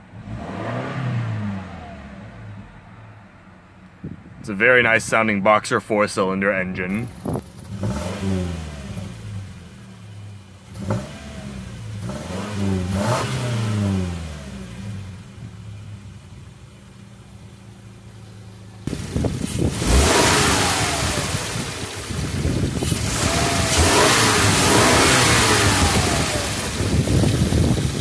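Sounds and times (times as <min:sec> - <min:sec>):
car engine revving: 0:00.0 - 0:03.9, 0:06.8 - 0:28.0
car engine idling: 0:01.3 - 0:28.0
loud rushing noise: 0:18.9 - 0:28.0.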